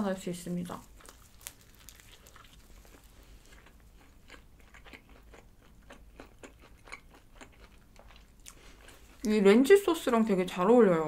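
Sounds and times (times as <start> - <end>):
person chewing food: 0.8 - 9.3.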